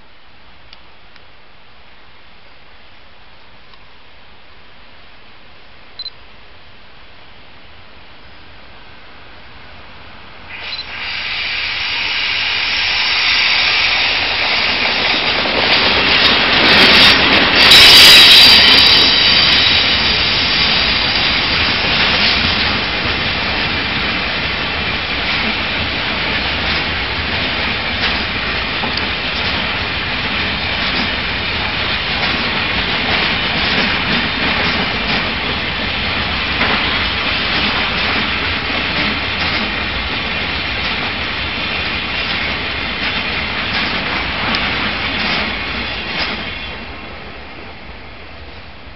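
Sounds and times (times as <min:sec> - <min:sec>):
electric locomotive passing: 0:09.4 - 0:48.9
train wheel clacks: 0:10.9 - 0:46.8
freight wagons running on rails: 0:10.9 - 0:47.0.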